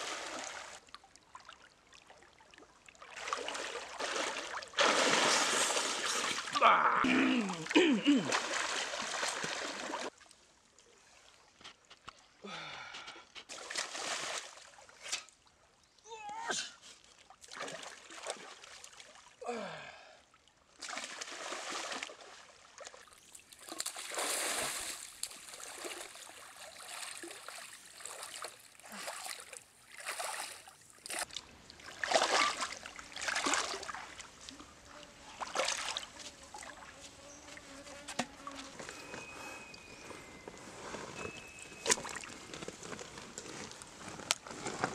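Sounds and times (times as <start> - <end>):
person wading through water: 0.0 - 15.0, 20.8 - 34.8, 35.4 - 37.0.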